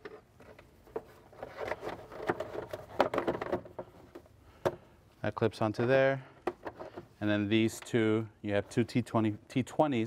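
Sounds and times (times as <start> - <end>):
plastic scraping and rubbing: 0.0 - 4.3.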